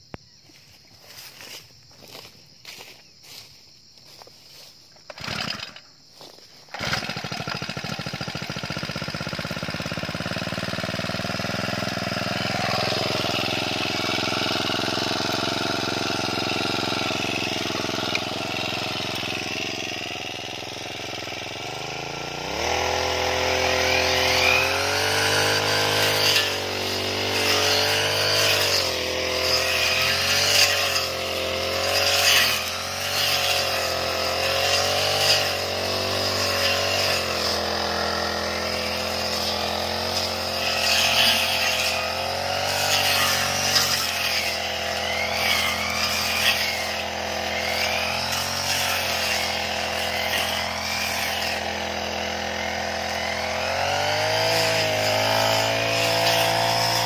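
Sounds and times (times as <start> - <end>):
brush cutter engine: 0.0 - 57.0
blade swishing through grass: 23.0 - 57.0.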